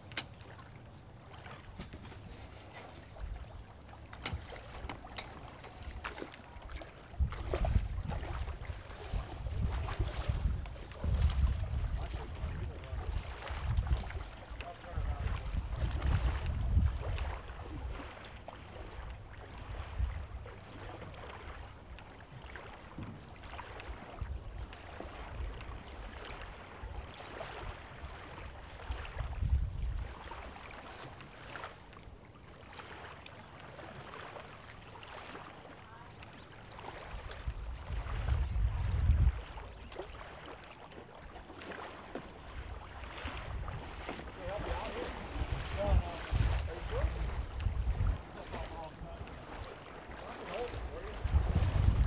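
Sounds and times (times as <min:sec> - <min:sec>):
small waves on shore: 0:00.0 - 0:52.0
wind buffeting microphone: 0:07.1 - 0:18.1, 0:28.8 - 0:30.3, 0:37.0 - 0:39.8, 0:42.4 - 0:52.0.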